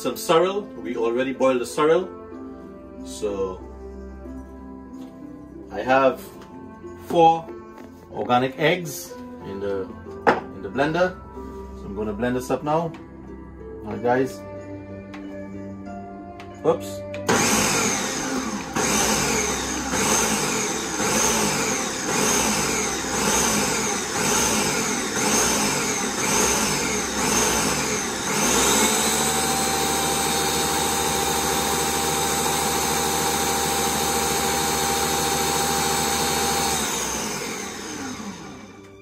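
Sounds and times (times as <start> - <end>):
blender motor whipping eggs: 17.3 - 38.9.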